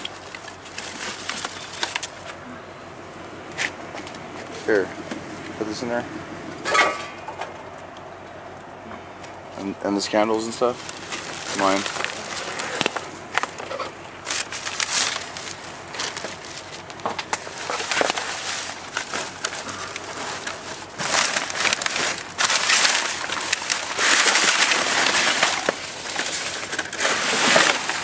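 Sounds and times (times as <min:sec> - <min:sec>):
plastic bags crinkling: 0:00.0 - 0:02.3, 0:10.7 - 0:28.0.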